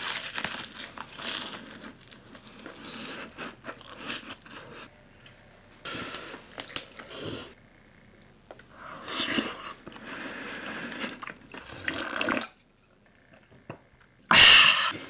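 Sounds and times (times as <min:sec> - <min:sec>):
slurping and gulping soup: 0:08.8 - 0:12.6.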